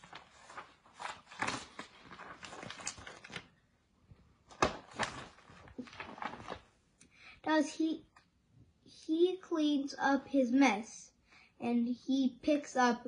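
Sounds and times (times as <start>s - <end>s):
book pages rustling: 0.0s - 3.7s, 4.4s - 6.8s.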